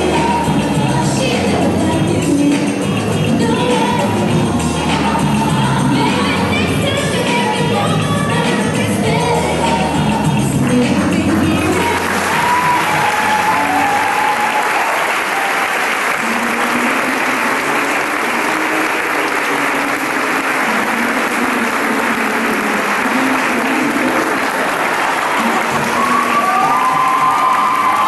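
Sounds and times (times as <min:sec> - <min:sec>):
audience applauding: 0:10.7 - 0:28.0.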